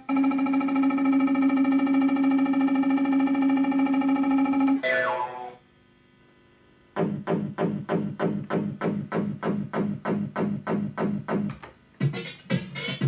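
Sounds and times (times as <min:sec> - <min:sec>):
falling run of electronic notes: 0:00.0 - 0:05.6
warbling synth tone: 0:00.0 - 0:05.6.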